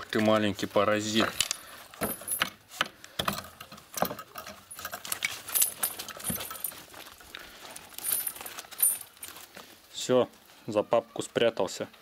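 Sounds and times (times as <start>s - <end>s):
dog chain clinking and rattling: 1.2s - 2.6s, 3.3s - 9.5s.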